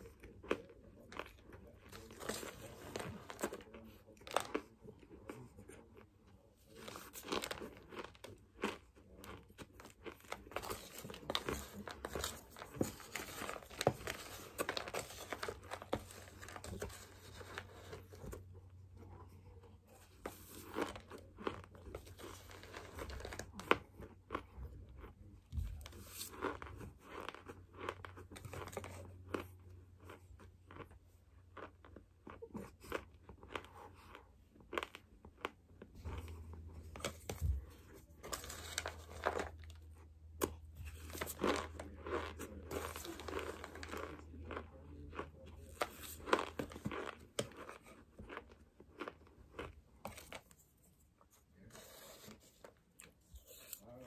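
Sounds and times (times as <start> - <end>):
crunchy chewing: 0.0 - 50.8
plastic spoon scraping a tub: 36.0 - 39.8, 51.7 - 52.8.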